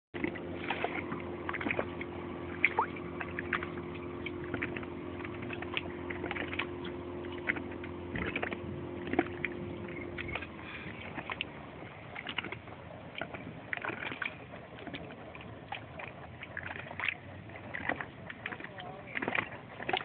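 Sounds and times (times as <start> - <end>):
low motor hum: 0.1 - 20.0.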